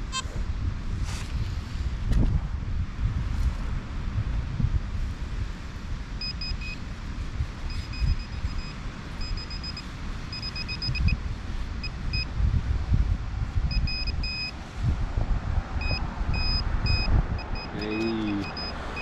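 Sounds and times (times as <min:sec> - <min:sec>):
metal detector high beeps: 0:00.0 - 0:00.3, 0:07.7 - 0:11.2, 0:13.7 - 0:14.5, 0:15.8 - 0:19.0
wind buffeting microphone: 0:00.0 - 0:06.3, 0:10.8 - 0:17.9.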